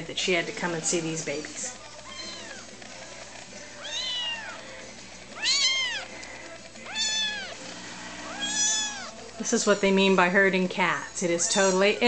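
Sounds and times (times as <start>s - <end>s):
cat meowing: 2.0s - 2.6s, 3.8s - 4.6s, 5.4s - 6.1s, 6.9s - 7.6s, 8.2s - 9.2s.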